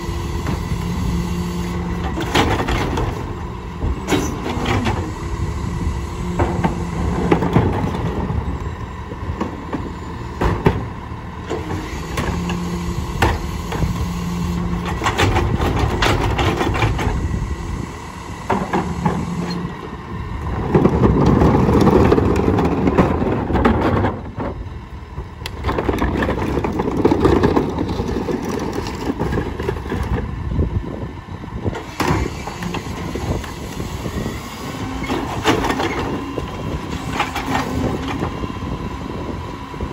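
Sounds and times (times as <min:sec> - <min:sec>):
garbage truck diesel engine running: 0:00.0 - 0:39.9
knocks and clatters of trash carts: 0:02.0 - 0:05.1, 0:06.3 - 0:08.5, 0:09.4 - 0:14.0, 0:14.7 - 0:17.2, 0:20.5 - 0:24.6, 0:25.5 - 0:30.3, 0:35.0 - 0:38.4.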